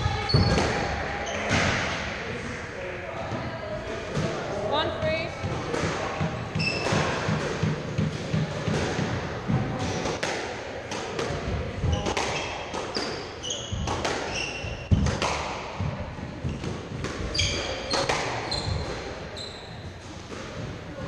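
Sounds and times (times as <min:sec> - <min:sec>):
squash ball hitting rackets: 0:00.0 - 0:02.1, 0:05.4 - 0:21.0
shoes squeaking on wooden floor: 0:06.5 - 0:07.2, 0:11.8 - 0:15.1, 0:17.2 - 0:20.0.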